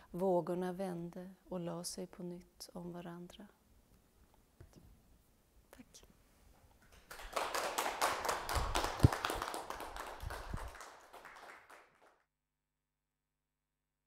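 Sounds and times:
audience applauding: 6.9 - 12.2.

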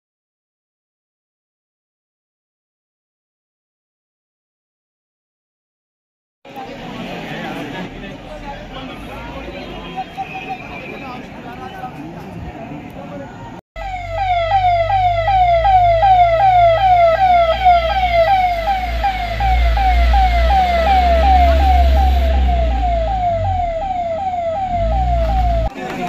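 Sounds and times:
ambulance siren wailing: 13.8 - 25.7.

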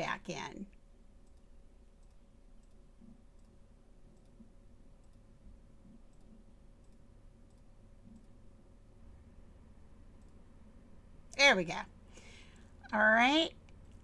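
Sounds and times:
faint steady hum: 0.0 - 14.0
computer mouse clicks: 1.2 - 8.4, 10.2 - 10.4.

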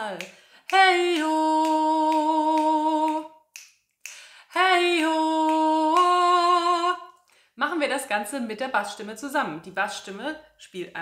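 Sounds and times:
woman singing: 0.0 - 3.5, 4.3 - 11.0
light rhythmic clicks: 0.0 - 6.4.

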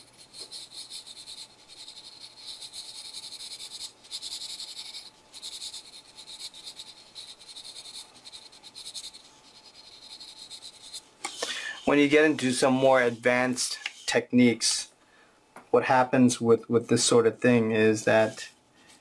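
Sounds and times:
marker rubbing on paper: 0.0 - 14.2.

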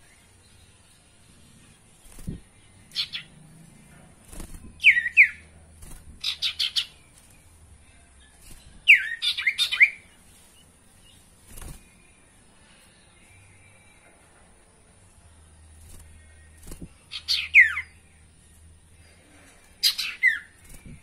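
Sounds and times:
bird singing whistled notes: 4.7 - 5.5, 8.8 - 10.2, 17.1 - 18.1.

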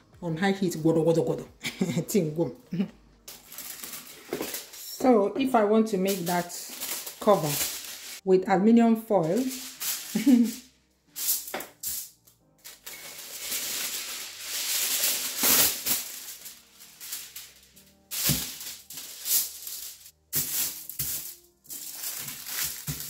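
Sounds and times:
aluminium foil crinkling: 3.2 - 5.0, 5.9 - 8.2, 9.2 - 23.0.

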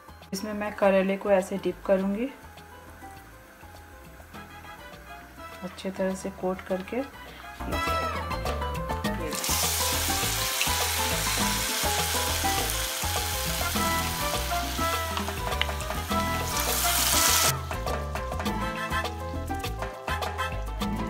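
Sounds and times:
background music: 0.0 - 21.0
food frying in hot oil: 9.3 - 17.5.

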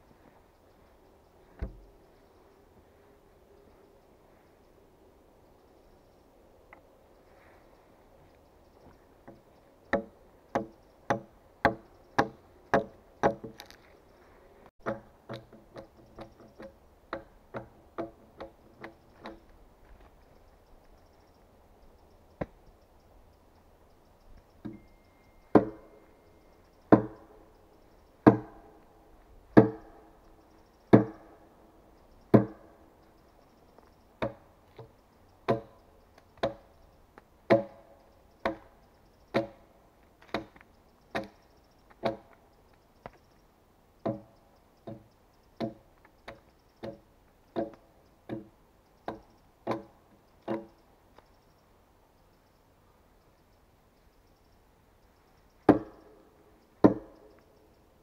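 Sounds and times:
axe chopping log: 14.8 - 15.6, 25.5 - 25.8, 26.9 - 27.2, 28.2 - 28.7, 29.6 - 29.9, 30.9 - 31.3, 32.3 - 32.6, 34.2 - 34.4, 35.5 - 35.7, 36.4 - 36.6, 37.5 - 38.7, 39.3 - 39.6, 40.3 - 40.5, 42.0 - 42.3, 44.0 - 44.3, 47.6 - 48.5, 49.1 - 49.9, 50.5 - 50.7, 55.7 - 56.1, 56.8 - 57.2.

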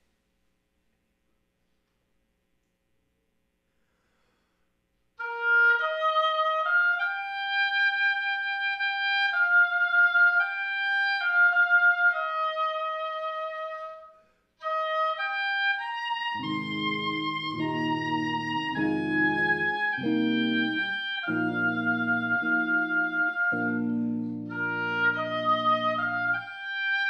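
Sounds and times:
oboe solo melody: 5.2 - 27.0
electric guitar chords: 16.4 - 26.4.

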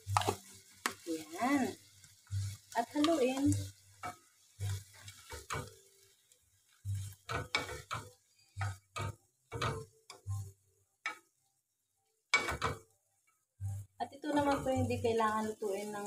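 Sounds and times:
utensils scraping and knocking pan: 0.1 - 1.1, 2.5 - 5.7, 6.9 - 9.9.

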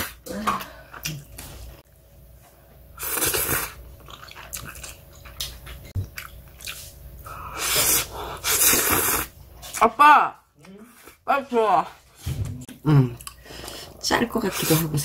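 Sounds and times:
loud noodle slurping: 3.0 - 3.8, 7.4 - 9.3
chewing with small clicks: 4.0 - 6.9, 13.2 - 13.8.

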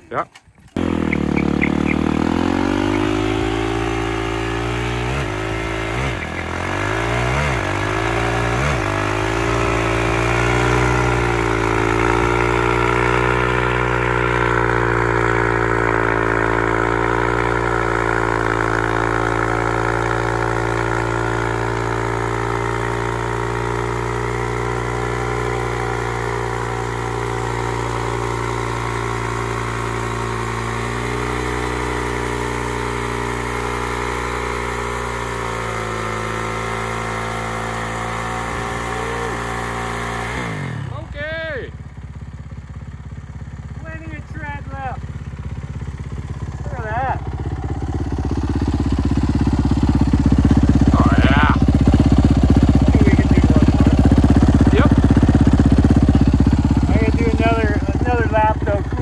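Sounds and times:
dirt bike engine revving: 0.8 - 59.0.

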